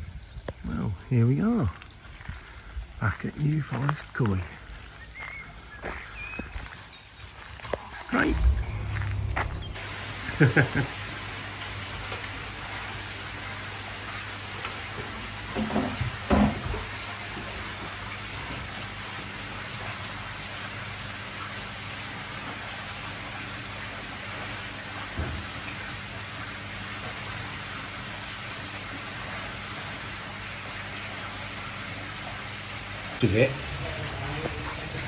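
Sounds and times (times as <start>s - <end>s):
water running and splashing: 0.7s - 35.0s
electric pump hum: 7.5s - 35.0s.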